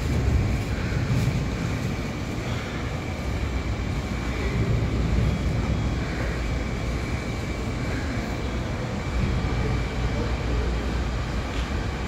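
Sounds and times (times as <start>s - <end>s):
electric trains rumbling: 0.0s - 12.0s
faint high whine: 0.0s - 12.0s.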